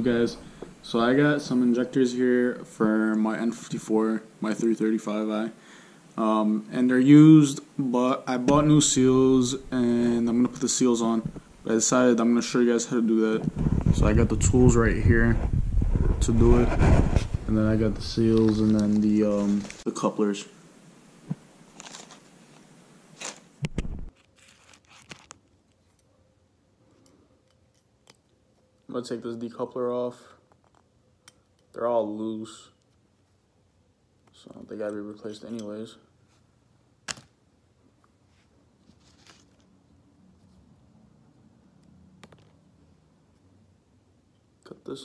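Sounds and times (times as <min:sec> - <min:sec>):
plastic packaging crinkling: 0:18.0 - 0:19.9, 0:21.7 - 0:22.3, 0:23.2 - 0:25.8, 0:38.9 - 0:39.7.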